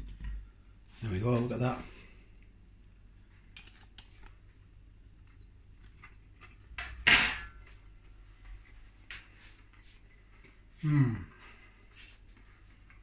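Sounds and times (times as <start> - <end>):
cutlery clatter: 6.8 - 7.6.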